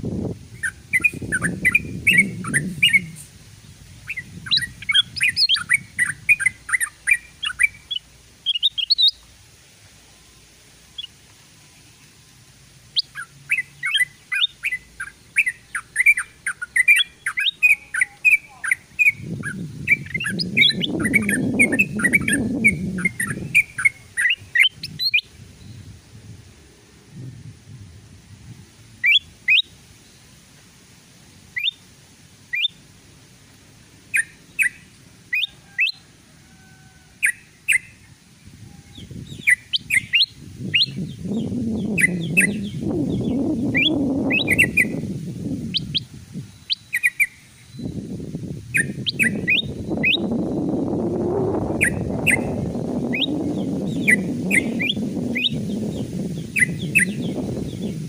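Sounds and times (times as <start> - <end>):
bulbuls chirping: 0.1 - 26.0, 29.0 - 30.4, 31.5 - 31.9, 32.5 - 32.9, 33.8 - 58.0.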